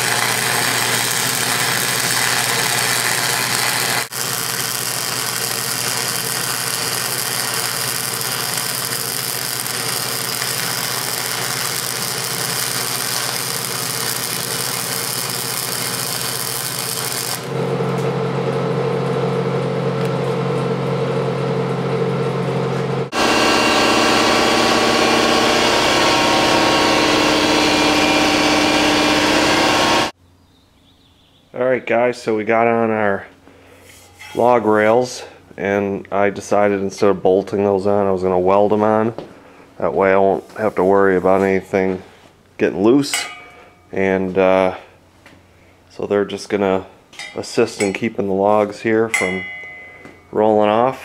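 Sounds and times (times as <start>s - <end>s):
welder crackling hiss: 0.0s - 17.5s, 23.1s - 30.1s
loud multi-tone hum: 0.0s - 30.2s.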